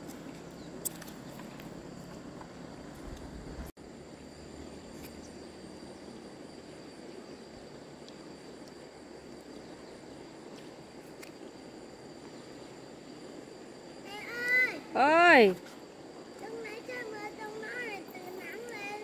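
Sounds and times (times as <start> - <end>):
high whine: 0.0 - 15.5.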